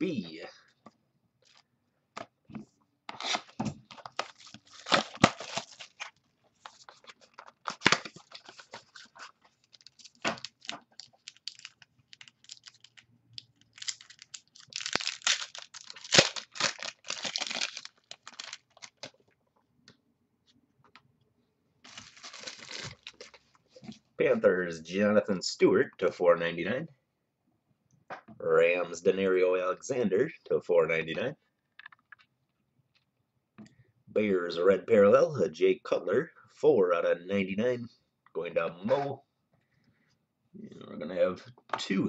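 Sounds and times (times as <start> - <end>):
card pack wrapper tearing: 3.1 - 19.2, 21.9 - 23.4
cards being handled: 3.1 - 19.2
wrapper crinkling: 3.2 - 19.2, 21.8 - 23.6.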